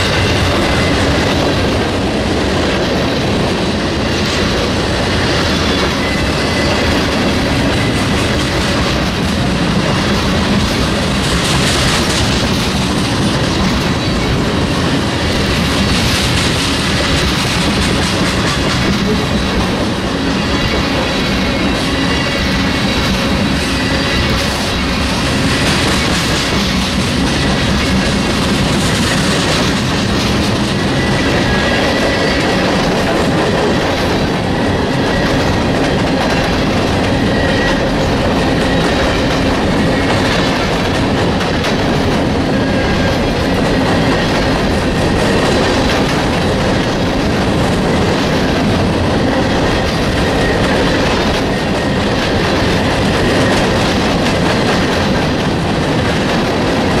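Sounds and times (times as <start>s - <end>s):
train wheels rumbling on rails: 0.0s - 57.0s
wheels clacking over rail joints: 0.0s - 57.0s.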